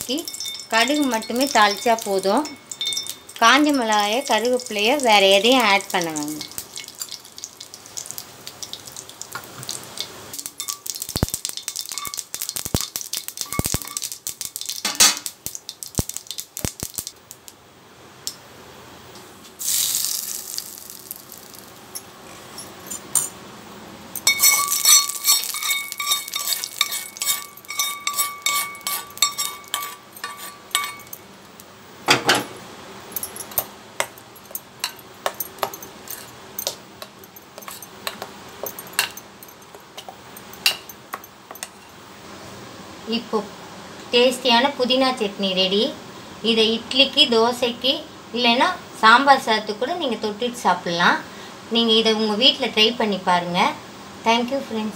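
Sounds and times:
seeds popping in hot oil: 0.0s - 17.6s, 19.6s - 22.0s, 24.2s - 31.7s, 33.6s - 41.8s
short sizzle: 19.2s - 23.4s
metal spoon scraping a pan: 24.2s - 31.2s, 34.8s - 40.9s.

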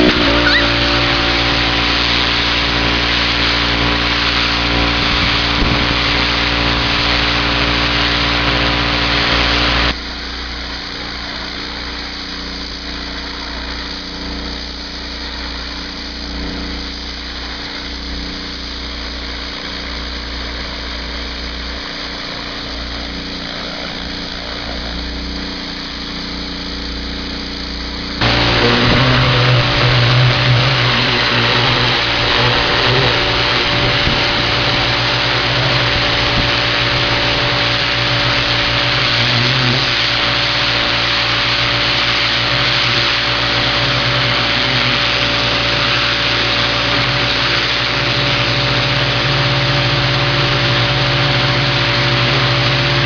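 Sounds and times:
high-pressure water spray hiss: 0.0s - 9.9s, 20.4s - 53.0s
pressure washer motor drone: 0.0s - 53.0s.

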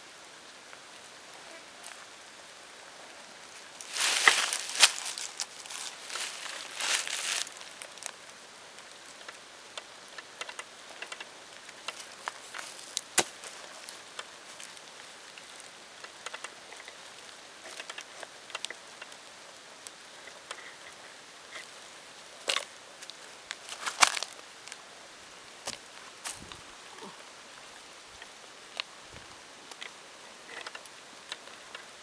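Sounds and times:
rustling: 2.9s - 32.0s
hands scraping through soil: 3.8s - 8.1s, 23.5s - 24.4s.

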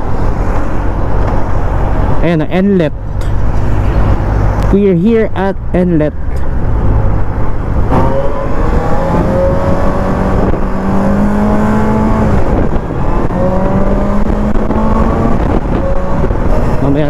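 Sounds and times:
wind noise: 6.4s - 17.0s.

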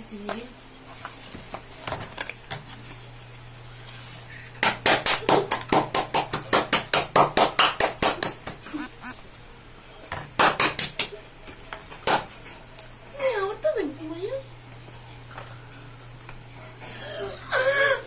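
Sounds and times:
person's short breathy vocal bursts: 8.7s - 9.2s.

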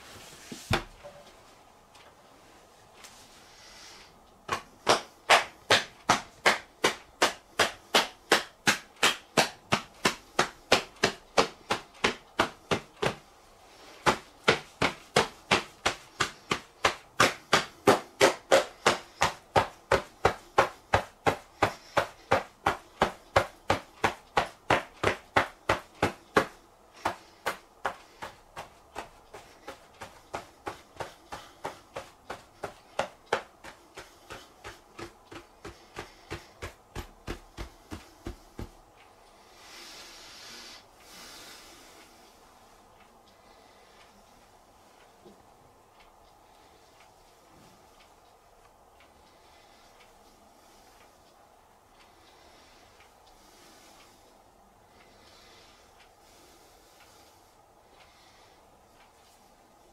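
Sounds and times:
palms slapping thighs: 4.3s - 38.9s.

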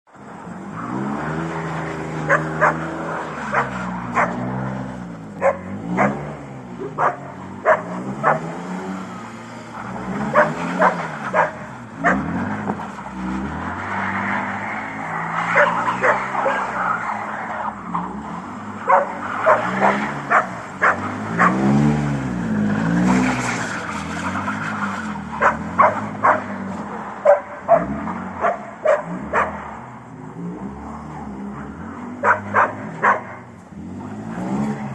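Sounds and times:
car engine revving: 0.1s - 34.9s
dog barking: 2.3s - 2.8s, 3.5s - 4.4s, 5.4s - 8.5s, 10.3s - 12.3s, 15.6s - 16.8s, 18.9s - 21.6s, 25.4s - 26.6s, 27.2s - 29.6s, 32.2s - 33.4s.

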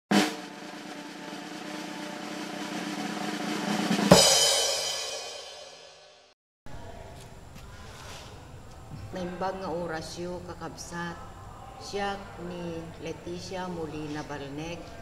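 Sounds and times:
drum roll: 0.1s - 6.0s
cymbal crash ringing: 0.1s - 6.3s.

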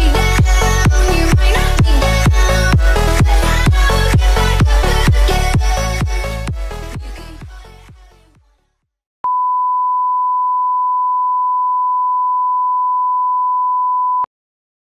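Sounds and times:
electronic dance music: 0.0s - 8.0s
steady test-tone beep: 9.3s - 14.3s.

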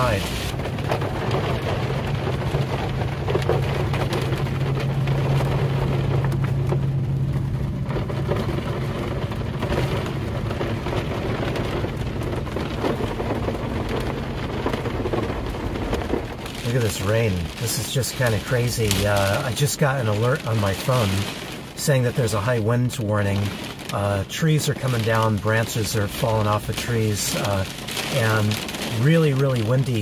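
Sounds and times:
heavy rain on vehicle roof: 0.0s - 30.0s.

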